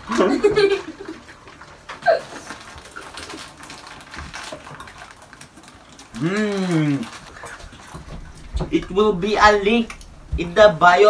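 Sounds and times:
chewing: 0:01.0 - 0:10.4.

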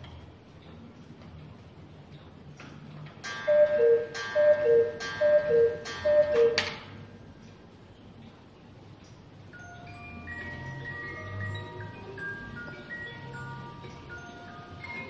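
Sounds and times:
two-note cuckoo calls: 0:03.5 - 0:06.8.

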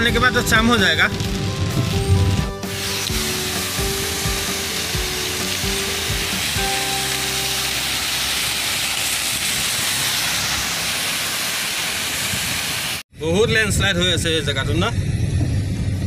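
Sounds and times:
waterfall hiss: 0:02.6 - 0:13.0.

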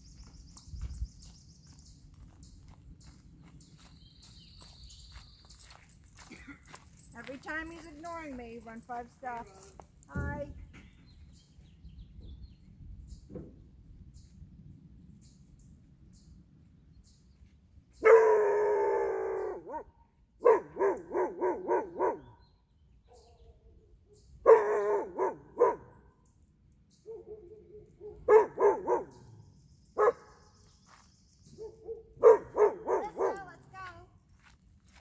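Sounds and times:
puppy barking: 0:18.0 - 0:18.8, 0:19.4 - 0:22.3, 0:24.4 - 0:25.9, 0:27.1 - 0:29.3, 0:30.0 - 0:30.4, 0:31.6 - 0:33.6.

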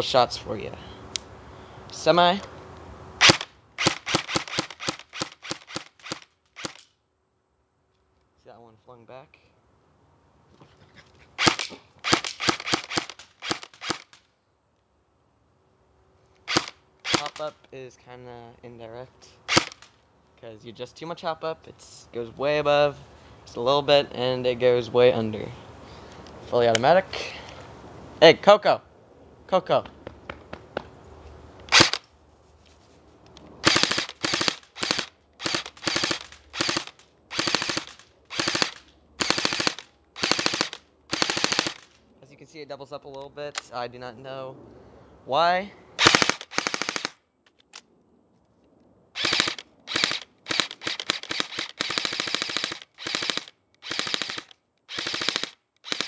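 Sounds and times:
airsoft gun shots: 0:03.2 - 0:06.8, 0:11.4 - 0:14.2, 0:16.5 - 0:17.5, 0:19.5 - 0:19.9, 0:31.7 - 0:32.0, 0:33.6 - 0:41.9, 0:46.0 - 0:47.2.

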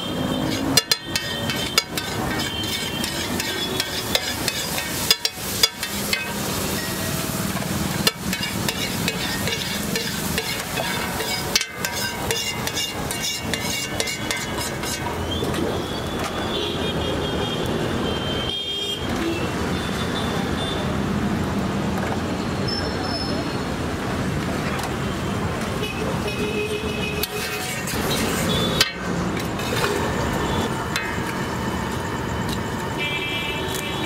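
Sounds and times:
street traffic noise: 0:00.0 - 0:34.0
metal spatula scraping griddle: 0:00.1 - 0:15.4, 0:27.2 - 0:30.0.

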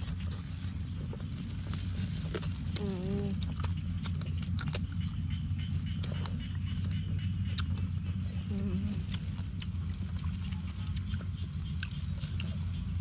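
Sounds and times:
plastic gloves handling food: 0:00.0 - 0:03.5, 0:08.4 - 0:13.0
crunching cucumber: 0:00.0 - 0:13.0
steady low hum: 0:00.0 - 0:13.0.

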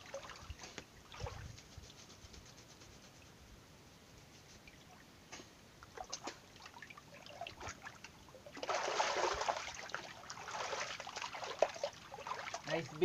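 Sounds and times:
small water splashes: 0:00.0 - 0:01.4, 0:05.8 - 0:13.0
trickling water: 0:00.0 - 0:01.5, 0:05.8 - 0:13.0
loud rush of splashing water: 0:08.6 - 0:09.8, 0:10.4 - 0:11.6.

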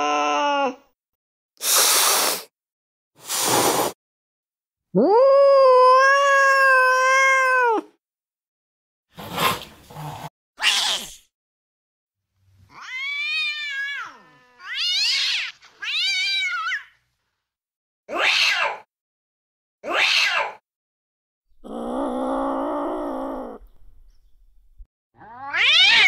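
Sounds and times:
cat hissing: 0:01.6 - 0:02.5, 0:03.2 - 0:04.0, 0:09.2 - 0:11.3
cat wailing meows: 0:05.0 - 0:07.9, 0:12.7 - 0:17.0, 0:19.8 - 0:20.6, 0:25.2 - 0:26.0
cat yowling: 0:05.0 - 0:07.9, 0:10.6 - 0:11.2, 0:12.7 - 0:16.9, 0:18.1 - 0:18.9, 0:19.8 - 0:20.6, 0:25.2 - 0:26.0.

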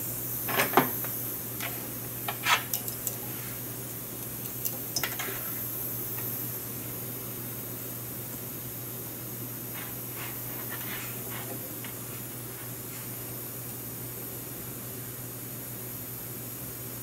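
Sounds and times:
steady low hum: 0:00.0 - 0:17.0
metal tools clicking and clinking: 0:01.6 - 0:03.3, 0:03.9 - 0:05.4.

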